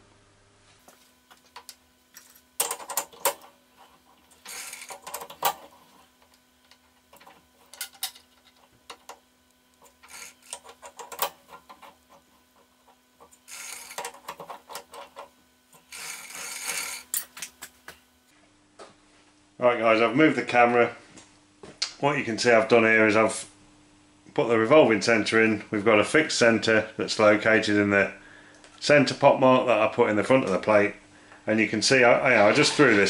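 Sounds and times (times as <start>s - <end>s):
metal clicking and clattering: 4.4s - 5.9s, 9.9s - 12.2s.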